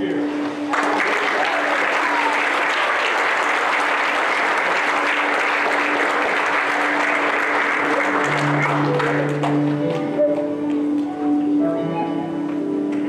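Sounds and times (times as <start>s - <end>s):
congregation applauding: 0.4s - 11.4s
soft music of long held notes: 4.9s - 13.0s.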